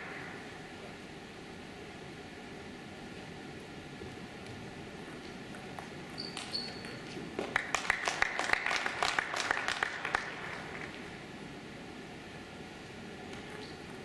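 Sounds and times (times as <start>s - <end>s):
brief high squeak: 6.2s - 7.0s
audience clapping: 7.4s - 11.1s.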